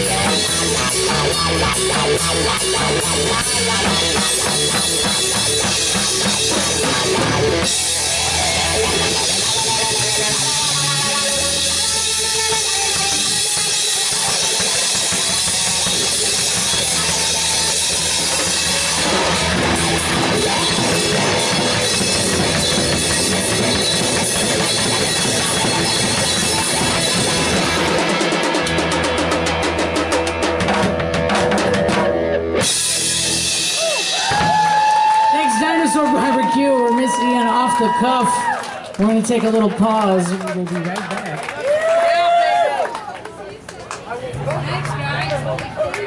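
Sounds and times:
drums and crashing cymbals: 0.0 - 36.9
live rock band playing: 0.0 - 42.0.

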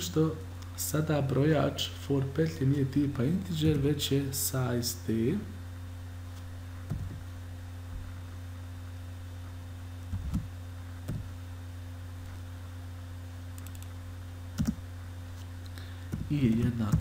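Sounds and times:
electrical hum: 0.0 - 17.0
keyboard keystrokes: 13.6 - 13.9, 14.6 - 14.8.

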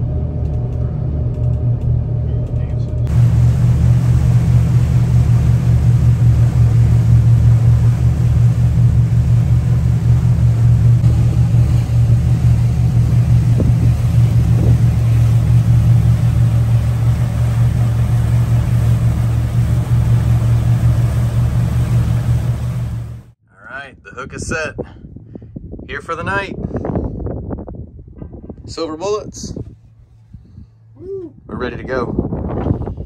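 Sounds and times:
motorboat engine rumble: 0.0 - 23.4, 28.0 - 33.0
water and wind noise: 3.1 - 23.2.

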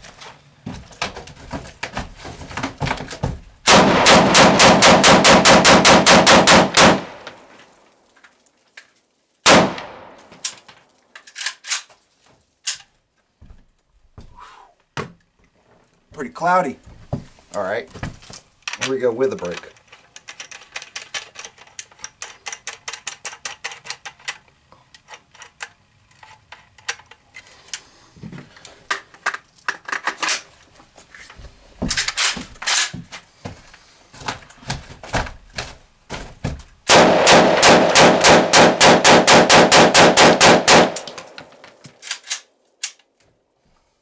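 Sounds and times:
pistol firing rapid loud shots: 3.7 - 7.2, 9.5 - 10.1, 36.9 - 41.2
metallic clicks of rifle handling: 10.2 - 12.0, 12.6 - 12.9, 18.6 - 27.8, 40.9 - 43.2.

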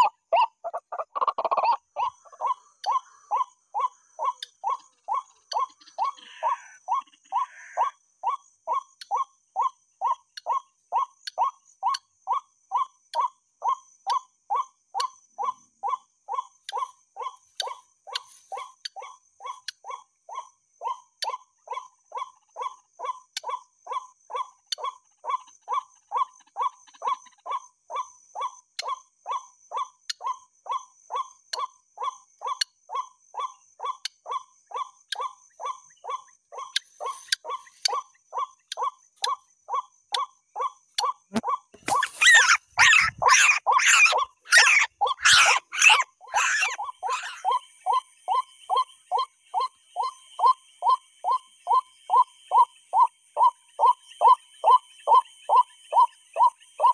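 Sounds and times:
bird call over speaker: 41.3 - 47.5.

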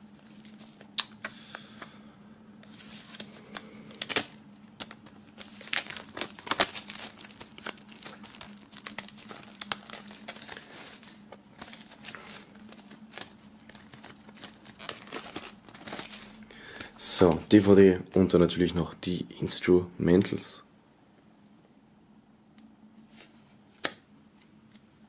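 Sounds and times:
faint hum: 0.0 - 25.0
plastic wrap crinkling: 0.1 - 1.0, 2.6 - 18.4.

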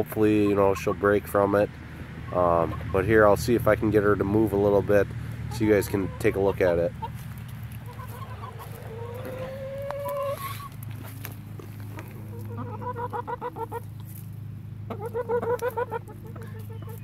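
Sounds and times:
hen clucking: 0.0 - 17.0
hen calling: 2.2 - 3.3, 4.3 - 14.2, 14.8 - 17.0.

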